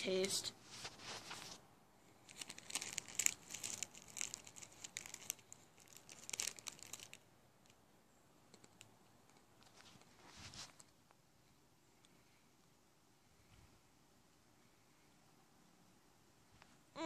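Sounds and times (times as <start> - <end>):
plastic pouch crinkling: 2.2 - 7.8.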